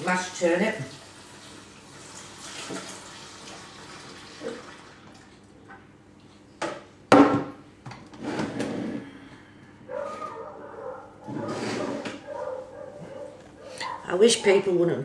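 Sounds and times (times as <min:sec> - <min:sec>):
tap water running into sink: 0:00.0 - 0:05.5.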